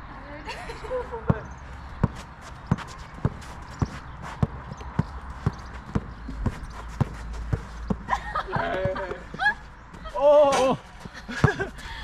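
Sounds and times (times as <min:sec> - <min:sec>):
basketball bouncing: 0:01.2 - 0:09.2.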